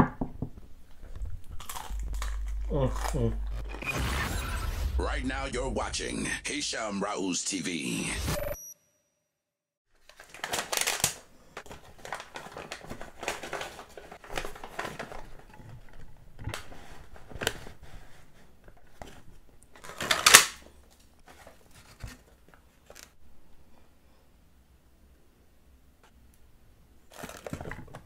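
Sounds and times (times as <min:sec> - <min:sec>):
paper wrapper crinkling: 0:09.9 - 0:17.7, 0:27.1 - 0:27.9.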